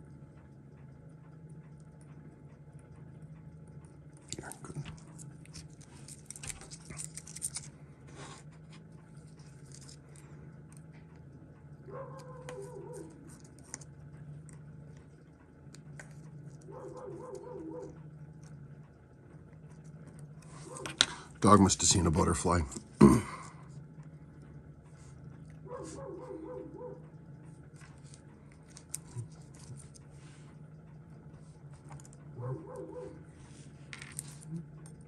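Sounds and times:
steady low hum: 0:00.0 - 0:35.0
dog barking: 0:11.9 - 0:13.2, 0:16.7 - 0:18.0, 0:20.6 - 0:21.0, 0:25.6 - 0:27.0, 0:32.4 - 0:33.2.

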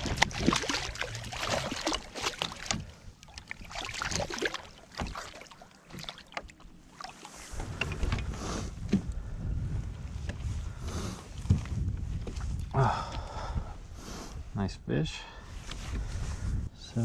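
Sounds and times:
fish splashing at water surface: 0:00.0 - 0:07.4.

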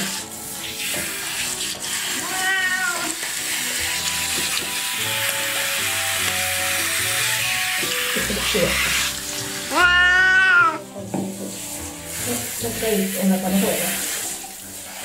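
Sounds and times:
shower spraying water: 0:00.0 - 0:15.0
cat meowing: 0:02.1 - 0:03.2, 0:09.6 - 0:11.0.

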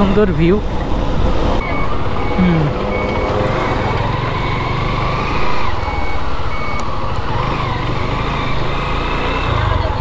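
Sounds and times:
motorcycle engines running: 0:01.4 - 0:10.0
high electronic beeper: 0:01.6 - 0:06.8.

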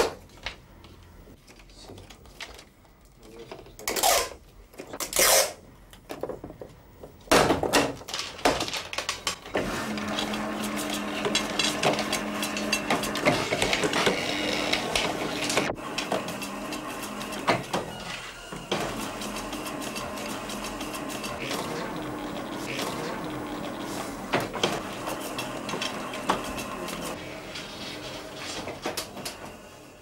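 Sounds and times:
motor hum: 0:09.5 - 0:27.6.

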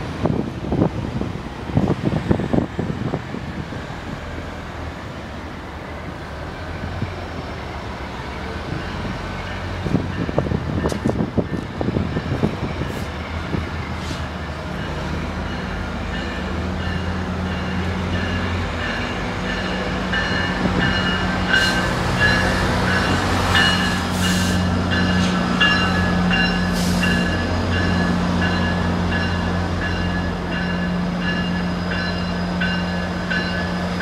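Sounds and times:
wind buffeting microphone: 0:00.0 - 0:04.5, 0:08.6 - 0:14.0
diesel locomotive engine drone: 0:00.0 - 0:34.0.

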